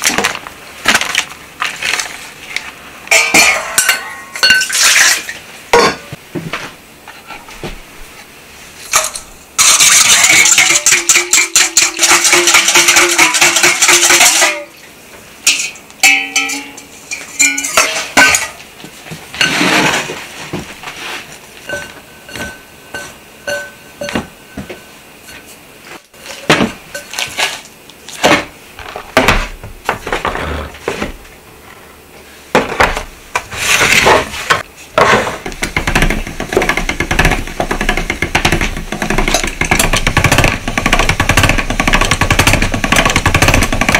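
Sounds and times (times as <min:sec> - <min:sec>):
chopsticks clinking in steel bowl: 0:21.7 - 0:24.2.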